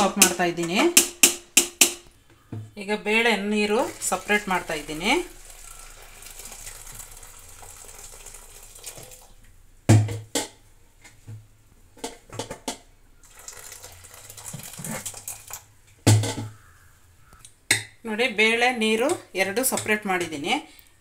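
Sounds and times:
water pouring into a pot: 3.6s - 9.4s, 13.2s - 15.8s
steel vessels knocking and clanking: 12.0s - 16.6s.

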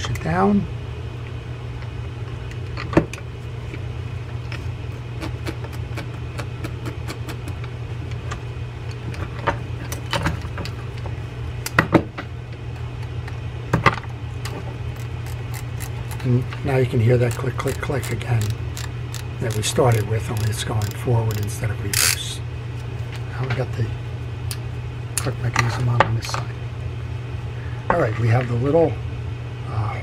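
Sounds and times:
fishing reel drag clicks: 17.3s - 22.2s.

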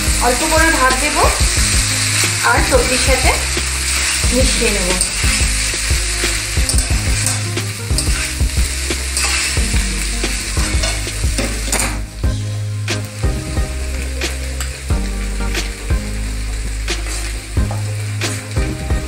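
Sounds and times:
light sizzle from pan: 0.0s - 19.0s
metal spatula scraping a wok: 6.6s - 9.6s, 10.5s - 12.0s.

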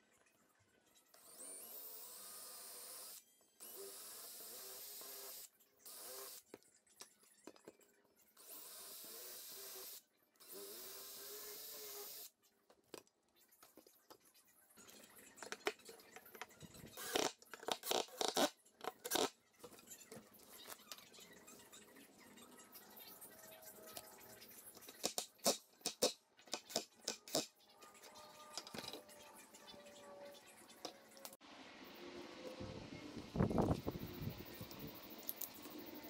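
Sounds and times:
cordless drill boring into wood: 1.2s - 6.4s, 8.4s - 12.3s, 17.0s - 18.5s.

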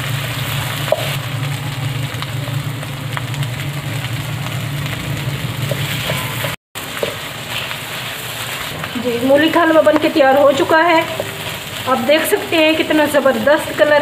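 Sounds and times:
steady low hum: 0.0s - 6.6s
food sizzling in a wok: 0.0s - 14.0s
wooden spatula scraping: 5.6s - 12.5s.

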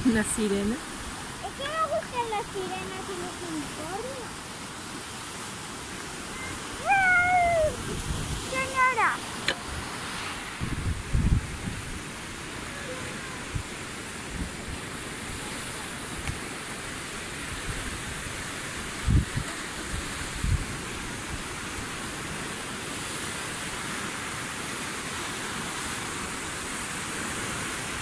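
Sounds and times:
sea surf: 0.0s - 28.0s
wind thumps on microphone: 6.9s - 12.3s, 18.9s - 21.4s.

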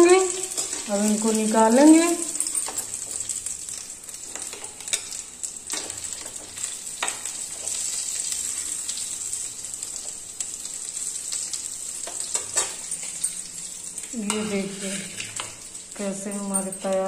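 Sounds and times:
food sizzling in hot oil: 0.0s - 17.0s
metal ladle scraping pan: 14.2s - 15.6s.

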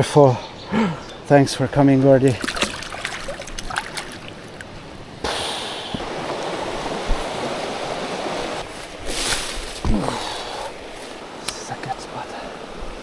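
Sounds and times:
water rushing over rapids: 5.6s - 9.2s.

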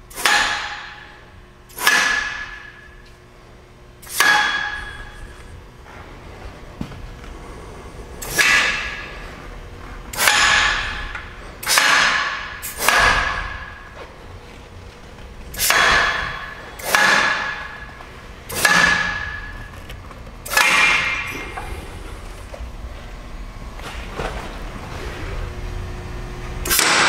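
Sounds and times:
pneumatic clamp clacking: 8.2s - 9.0s, 10.1s - 13.7s, 15.5s - 17.8s, 18.5s - 21.7s, 26.6s - 27.0s.

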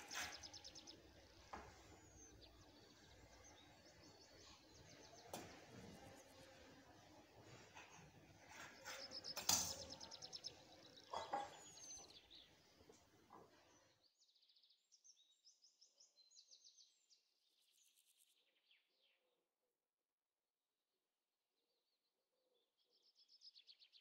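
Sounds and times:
birds chirping in trills: 0.0s - 12.8s.

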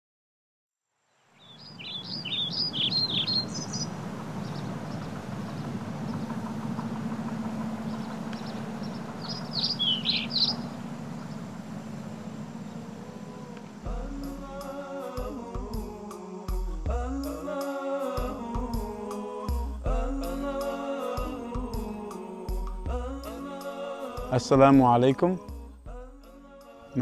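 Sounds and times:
birds chirping: 1.4s - 14.3s
low background rumble: 2.0s - 14.8s.

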